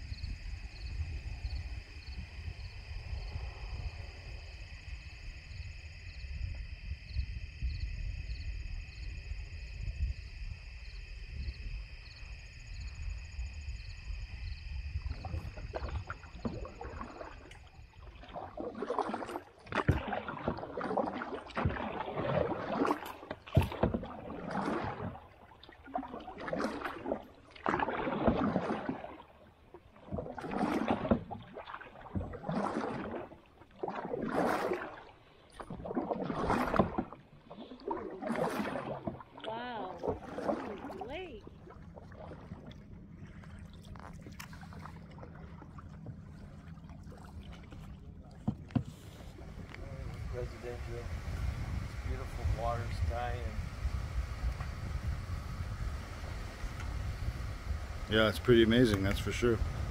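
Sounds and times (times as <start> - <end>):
paddle strokes splashing water: 14.9 - 59.9
low rumble: 41.5 - 59.9.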